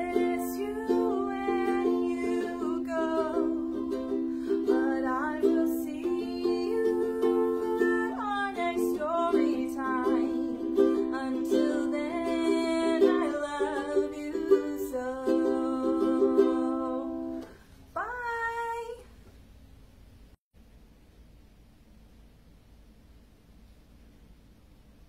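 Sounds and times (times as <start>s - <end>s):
ukulele strumming: 0.0s - 17.6s
woman singing: 0.0s - 19.1s.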